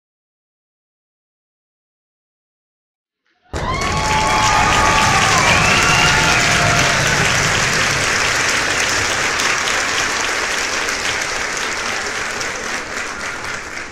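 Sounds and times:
jet engines roaring: 0:04.4 - 0:11.4.

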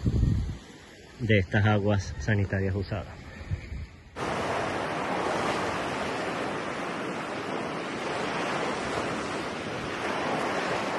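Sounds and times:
ocean surf washing ashore: 0:04.1 - 0:10.9.

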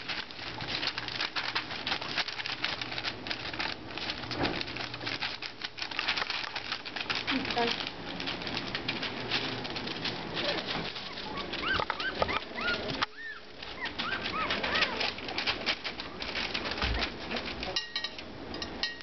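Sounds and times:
paws scratching on blanket: 0:00.0 - 0:17.9
puppies squeaking and whimpering: 0:10.0 - 0:17.3.

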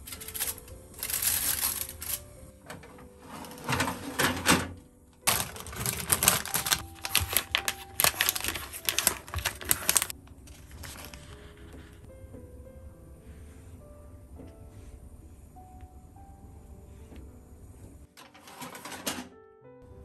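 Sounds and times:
plastic packet crinkling: 0:00.1 - 0:02.4, 0:05.2 - 0:11.5.

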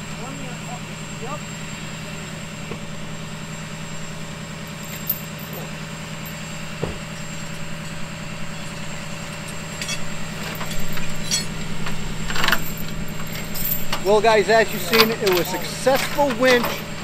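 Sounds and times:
truck engine idling: 0:00.0 - 0:17.0
metal chains clinking: 0:04.6 - 0:06.5, 0:07.8 - 0:17.0.

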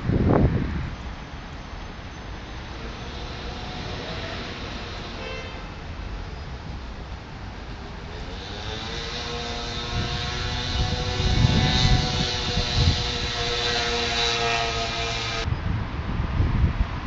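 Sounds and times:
passing vehicle engine: 0:01.9 - 0:15.5.

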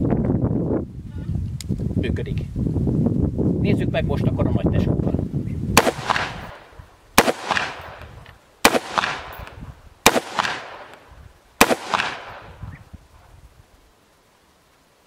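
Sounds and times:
rifle shots echoing: 0:05.8 - 0:12.8.

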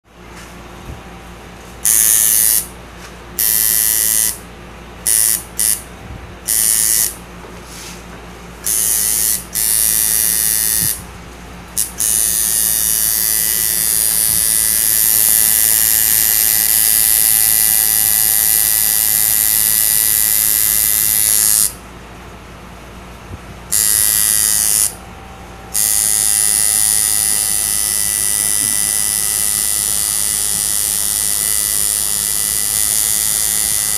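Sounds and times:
tattoo machine buzzing: 0:01.8 - 0:02.7, 0:03.4 - 0:04.4, 0:05.0 - 0:07.2, 0:08.6 - 0:11.1, 0:11.8 - 0:21.8, 0:23.7 - 0:25.0, 0:25.7 - 0:33.9
low hum: 0:21.8 - 0:29.8.

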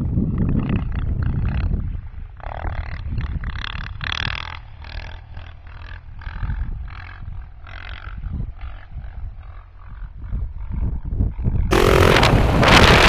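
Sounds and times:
wind on microphone: 0:00.0 - 0:04.5, 0:06.1 - 0:13.0
quad engine revving: 0:11.7 - 0:13.0.

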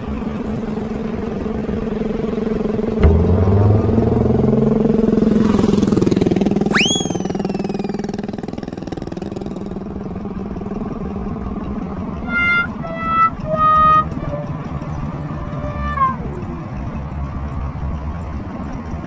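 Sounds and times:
small motorcycle engine running: 0:00.0 - 0:19.0
sharp whistle-like tone: 0:06.6 - 0:08.2
flute-like music: 0:06.7 - 0:08.1, 0:12.2 - 0:14.5.

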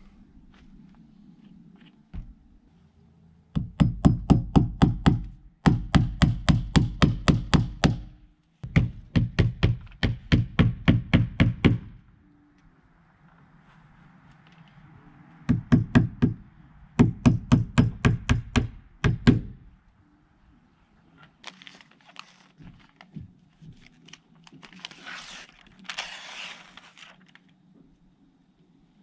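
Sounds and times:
hammer nailing: 0:03.6 - 0:12.0, 0:17.0 - 0:19.6
tape crinkling: 0:21.2 - 0:27.6.

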